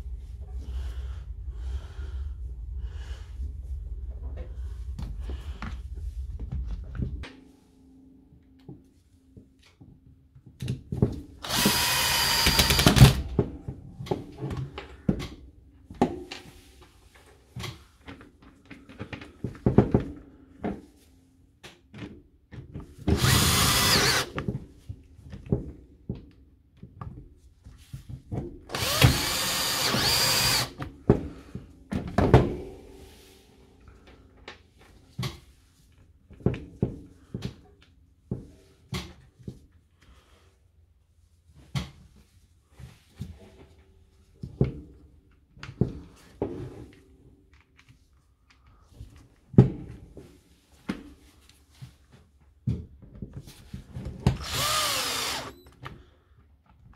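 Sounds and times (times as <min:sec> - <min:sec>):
cordless drill running: 0:11.4 - 0:13.2, 0:23.2 - 0:24.4, 0:28.7 - 0:30.8, 0:54.4 - 0:55.7.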